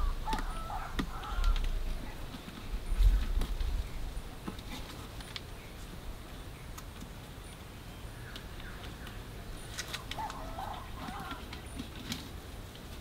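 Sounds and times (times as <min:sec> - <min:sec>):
wooden poles clicking and knocking: 0:00.0 - 0:03.8, 0:08.3 - 0:13.0
faint forest ambience: 0:00.0 - 0:13.0.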